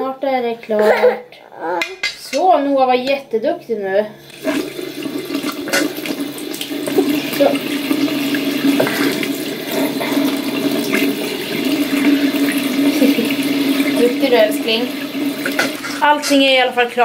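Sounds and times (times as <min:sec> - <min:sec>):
tap water running into sink: 0:04.2 - 0:17.0.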